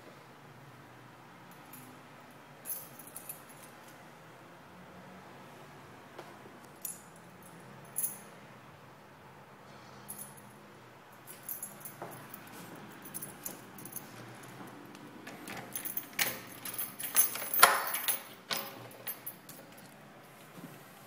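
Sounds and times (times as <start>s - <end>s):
keys jangling: 2.6s - 4.0s, 11.2s - 20.1s
key turning in door lock: 15.2s - 20.0s.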